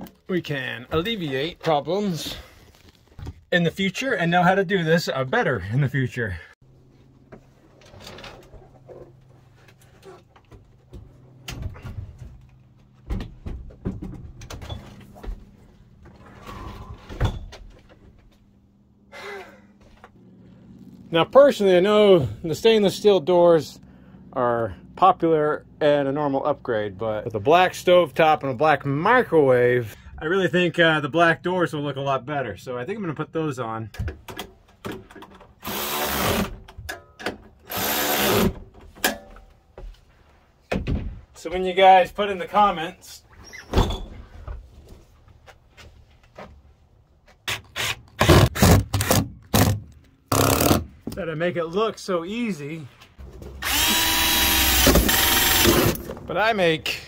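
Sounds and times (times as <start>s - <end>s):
knocks and rattles of handling: 6.8s - 18.6s, 33.9s - 35.6s
power drill running: 35.6s - 36.5s, 37.7s - 38.5s, 53.6s - 56.1s.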